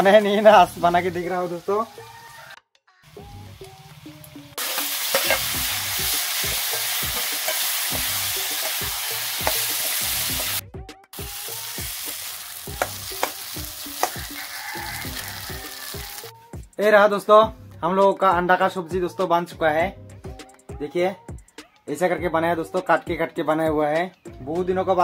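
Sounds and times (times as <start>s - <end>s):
vegetables sizzling in oil: 0.0s - 2.5s, 3.1s - 10.6s, 11.2s - 16.3s
metal spoon scraping a pan: 4.6s - 5.6s, 7.0s - 10.6s.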